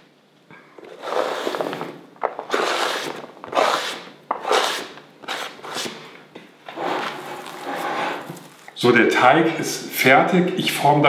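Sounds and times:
fingers scraping on plastic mat: 0.8s - 6.0s.

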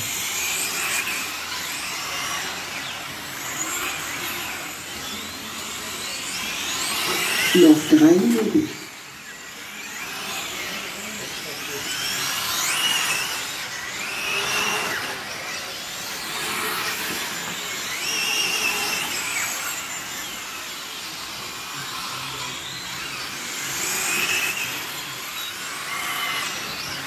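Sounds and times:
rc car motors whining: 0.0s - 27.0s.

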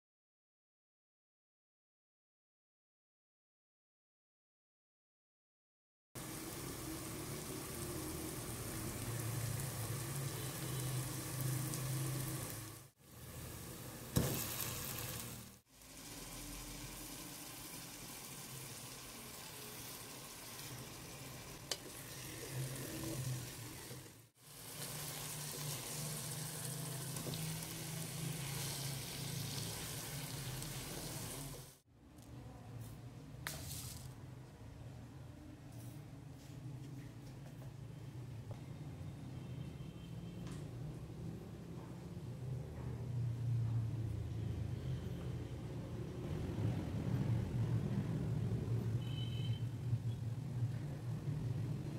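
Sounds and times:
food sizzling in oil: 6.2s - 31.8s.

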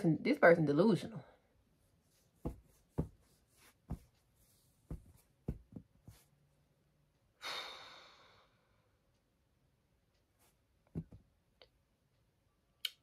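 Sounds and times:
person sighing: 7.4s - 8.6s.

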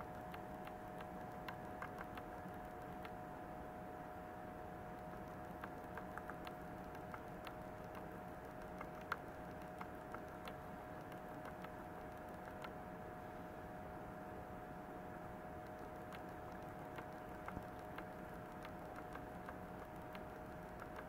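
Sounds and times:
light clicks and ticks: 0.0s - 3.2s, 4.9s - 12.9s, 15.6s - 21.0s
faint steady hum: 0.0s - 21.0s.

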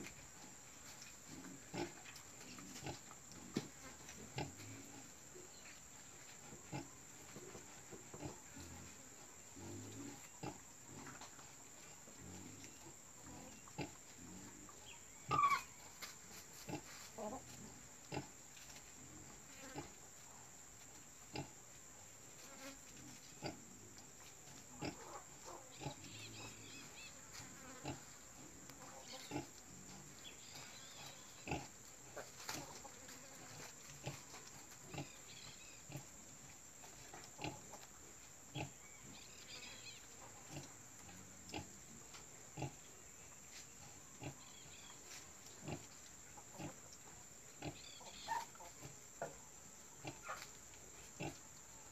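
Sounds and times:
pig squealing: 15.3s - 15.8s.

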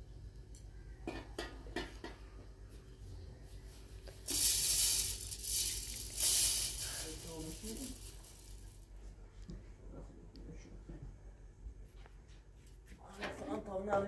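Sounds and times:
loud steady hiss: 4.0s - 9.0s.

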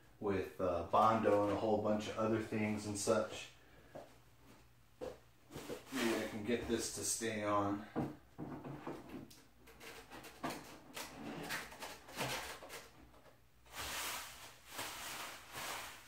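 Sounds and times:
plastic wrap rustling: 9.7s - 16.0s.

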